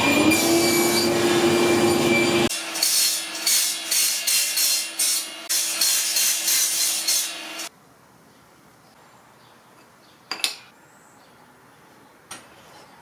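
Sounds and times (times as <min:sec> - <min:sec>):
miter saw cutting wood: 0:00.0 - 0:07.7.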